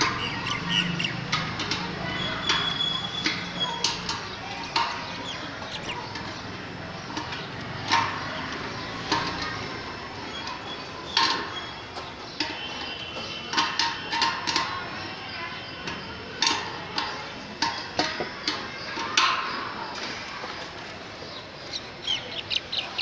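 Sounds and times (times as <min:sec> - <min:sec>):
metal clicks and knocks: 0:00.0 - 0:15.0.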